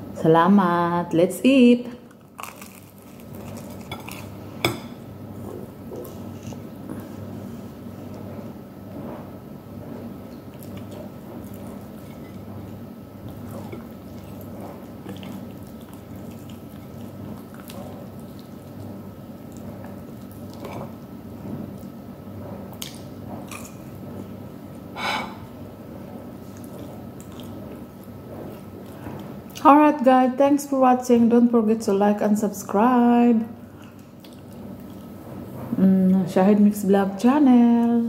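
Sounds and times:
steady low hum: 0.0 - 38.0
soft chewing and lip smacks: 26.5 - 27.8, 33.8 - 35.1.

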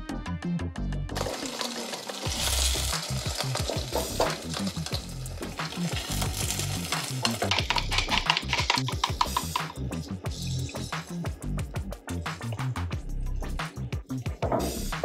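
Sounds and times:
pancake sizzling in oil: 1.2 - 7.5
chopsticks scraping a pan: 1.2 - 9.8.

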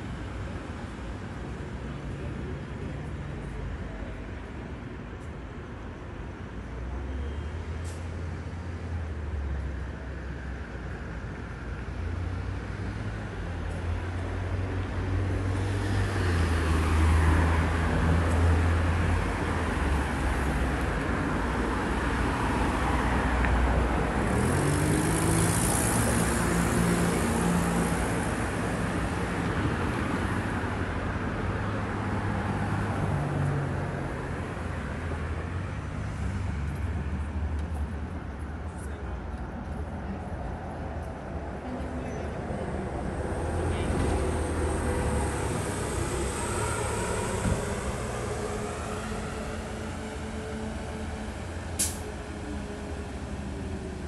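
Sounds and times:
vehicles passing: 0.0 - 54.0
tyre noise on road: 20.1 - 28.3
engine revving as vehicle pulls away: 24.2 - 27.9, 44.1 - 53.5.

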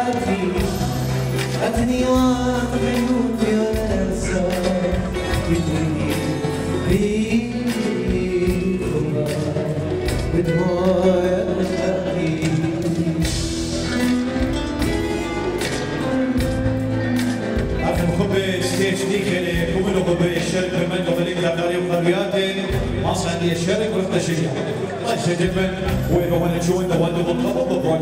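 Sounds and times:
singing: 0.0 - 13.3
drum beat: 0.0 - 24.5, 25.1 - 26.4
bass line: 0.0 - 28.0.

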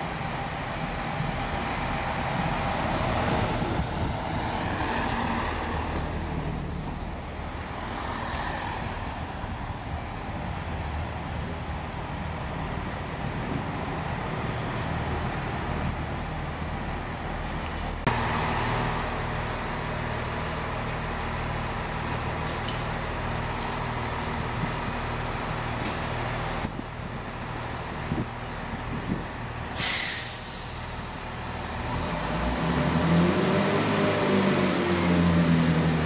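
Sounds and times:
diesel train engine idling: 0.0 - 32.6
air brake hiss: 16.0 - 16.7, 29.8 - 31.4.

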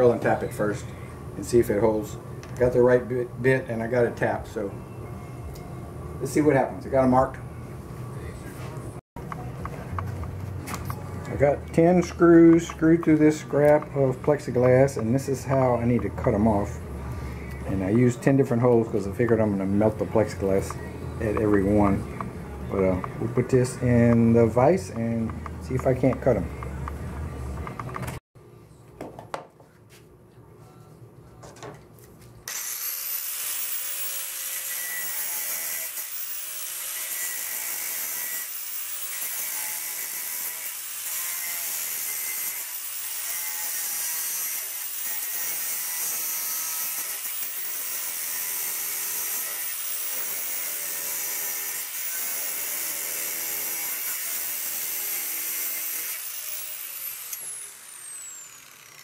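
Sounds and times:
angle grinder cutting metal screws: 32.5 - 59.0.

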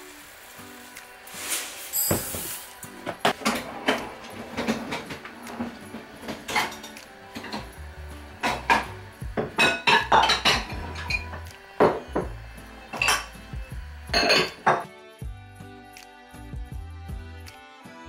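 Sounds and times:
music: 0.0 - 18.0
dishes clinking on countertop: 2.0 - 5.3, 6.3 - 7.7, 8.4 - 12.3, 14.2 - 14.9.

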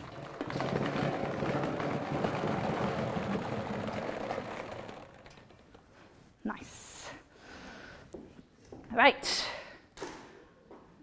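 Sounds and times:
plastic balls clattering into metal drum: 0.0 - 5.8.

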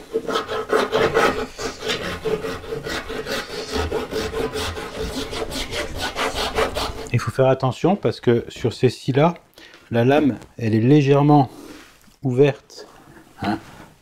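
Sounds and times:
handsaw cutting wood: 0.0 - 7.2.

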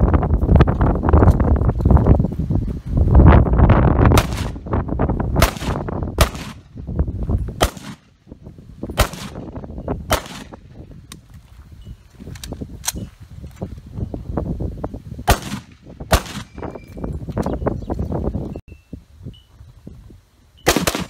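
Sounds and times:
rifle shots cracking: 4.2 - 4.6, 5.4 - 6.6, 7.6 - 8.1, 9.0 - 9.5, 10.1 - 10.6, 15.3 - 16.5, 20.7 - 21.0.

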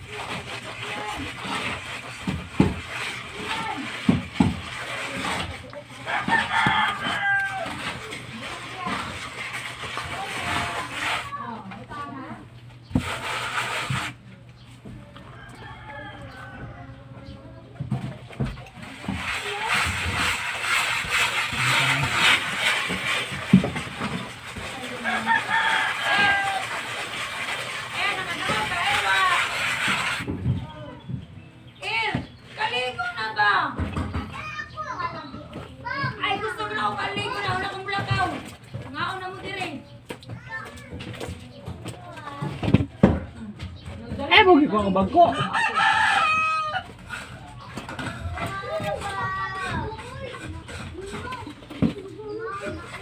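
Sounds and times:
hand tool scraping concrete wall: 0.0 - 12.0, 12.8 - 14.2, 18.4 - 30.4, 45.6 - 53.0
rooster crowing: 6.1 - 7.8, 15.3 - 17.0, 25.0 - 26.9, 45.3 - 46.9.

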